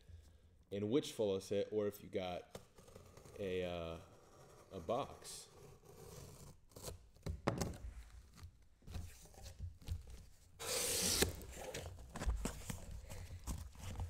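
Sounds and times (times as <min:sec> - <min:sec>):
tape slitting: 0:06.7 - 0:14.0
cardboard rubbing and scraping: 0:09.0 - 0:14.0
box rasping slide against carton: 0:10.6 - 0:12.0.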